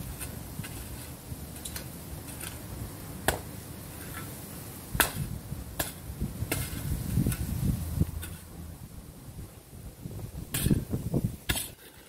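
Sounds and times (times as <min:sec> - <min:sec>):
garden tool striking soil: 0:00.0 - 0:02.6, 0:05.0 - 0:08.6, 0:10.5 - 0:12.0
garden tool scraping soil: 0:00.0 - 0:02.7, 0:03.8 - 0:04.4, 0:05.1 - 0:08.6, 0:10.5 - 0:12.0.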